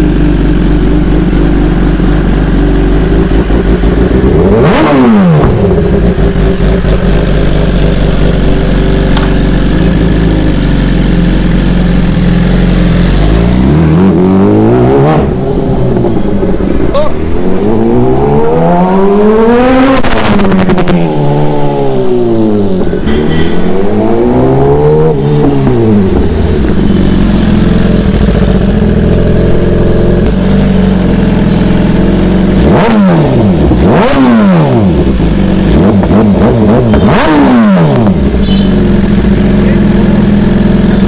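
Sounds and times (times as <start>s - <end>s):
motorcycle engine idling: 0.0s - 4.5s, 5.5s - 13.7s, 25.8s - 32.6s, 34.9s - 36.1s, 38.1s - 41.0s
motorcycle engine revving: 0.0s - 41.0s.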